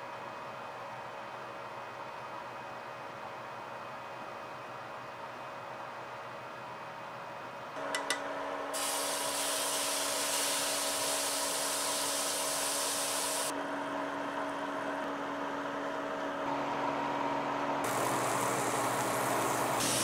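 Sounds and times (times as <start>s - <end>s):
water sizzling on hot pan: 8.8s - 13.5s, 17.9s - 20.0s.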